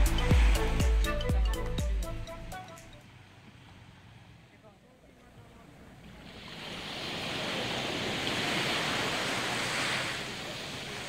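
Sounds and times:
wave breaking on beach: 6.0s - 11.0s.

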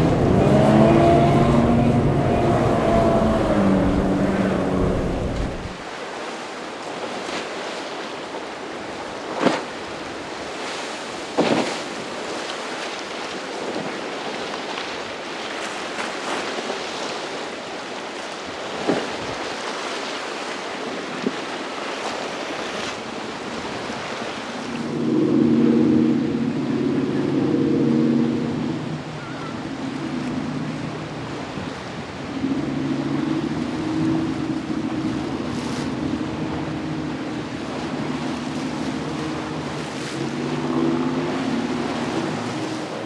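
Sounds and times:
wind on microphone: 0.0s - 5.9s, 22.6s - 43.0s
breaking surf: 0.0s - 6.2s
boat engine drone: 0.0s - 6.7s, 16.8s - 43.0s.

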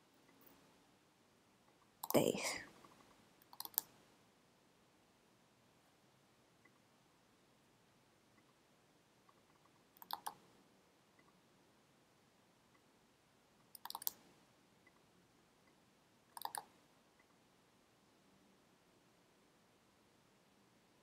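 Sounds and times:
computer clicking: 2.0s - 4.0s, 9.3s - 10.4s, 13.7s - 14.3s, 16.4s - 16.8s.

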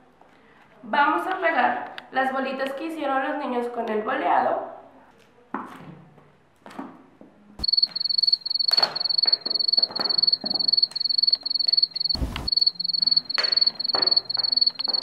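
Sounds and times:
cricket chirping: 7.6s - 15.0s
thump: 12.2s - 12.5s.

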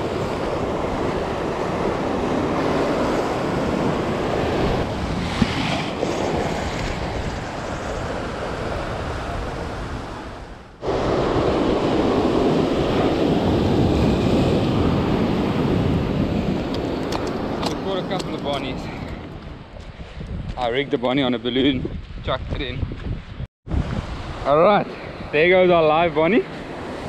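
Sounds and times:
surf breaking against rocks: 0.0s - 9.4s
wind buffeting microphone: 0.0s - 27.0s.

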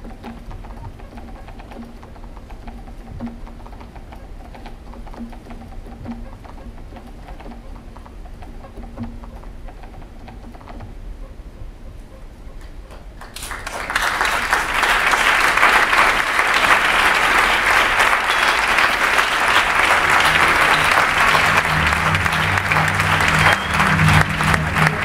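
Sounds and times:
audience applauding: 13.2s - 25.0s
low steady hum: 16.9s - 25.0s.

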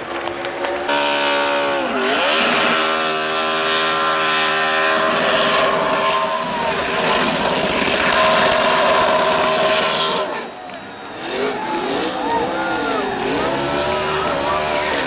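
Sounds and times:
race car engine at high revs: 0.0s - 15.0s.

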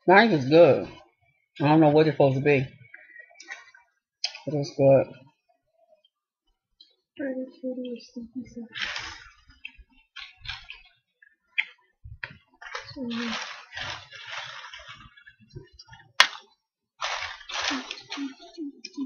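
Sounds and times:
rustling: 8.6s - 11.0s, 12.0s - 19.0s.

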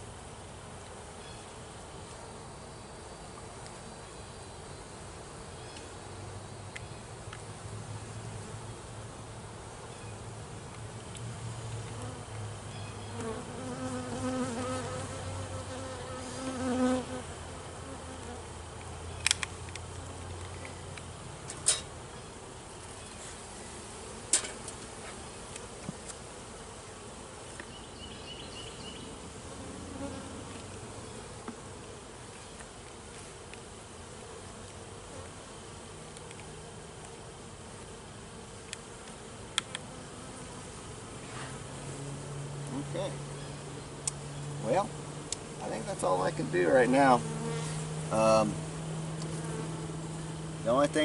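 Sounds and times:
honeybees buzzing: 0.0s - 51.0s
sharp clicks: 19.2s - 19.8s.

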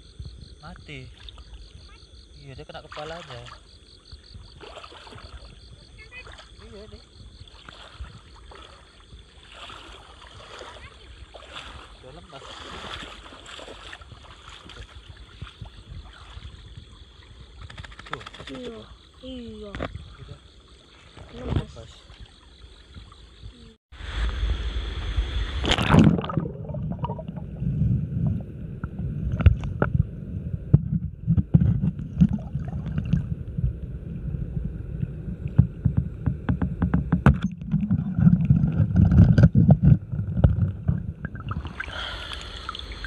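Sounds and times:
underwater rumble of moving water: 0.0s - 43.0s
river water splashing: 2.8s - 3.8s, 4.4s - 23.4s, 25.4s - 27.5s, 37.4s - 43.0s
underwater clicks and knocks: 28.8s - 30.0s, 30.7s - 33.3s, 35.0s - 41.8s.

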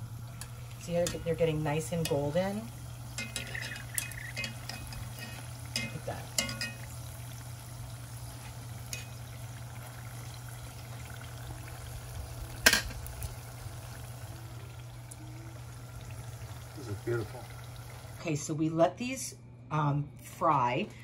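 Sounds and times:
food sizzling in hot oil: 0.0s - 18.2s.

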